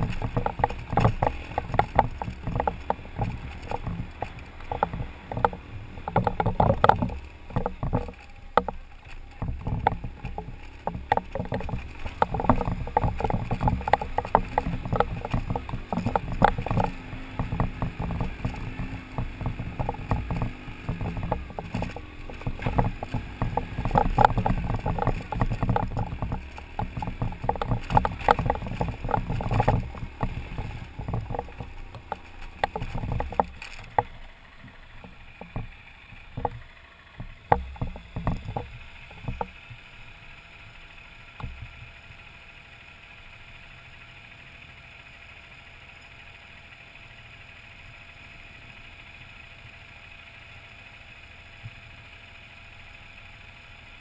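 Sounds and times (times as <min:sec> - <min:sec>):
rattling knocks: 0:00.0 - 0:39.8, 0:41.3 - 0:42.0.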